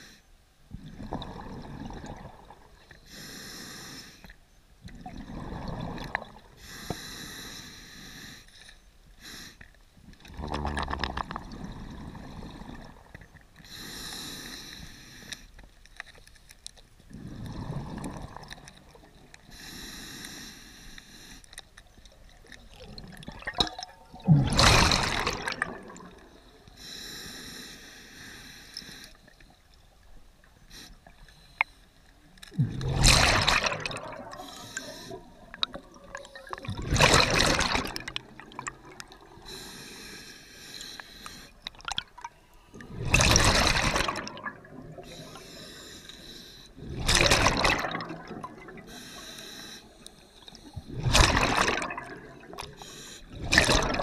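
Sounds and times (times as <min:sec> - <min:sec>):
rush of exhaled bubbles: 0:00.8 - 0:02.8, 0:04.9 - 0:06.5, 0:10.2 - 0:13.4, 0:17.1 - 0:19.3, 0:22.5 - 0:26.5, 0:32.6 - 0:39.5, 0:41.7 - 0:45.4, 0:46.8 - 0:49.0, 0:50.6 - 0:54.0
regulator inhale hiss: 0:03.0 - 0:04.4, 0:06.6 - 0:09.7, 0:13.6 - 0:15.6, 0:19.4 - 0:21.6, 0:26.7 - 0:29.4, 0:30.7 - 0:32.0, 0:34.4 - 0:35.5, 0:39.4 - 0:41.7, 0:45.0 - 0:46.8, 0:48.9 - 0:50.9, 0:52.6 - 0:53.4.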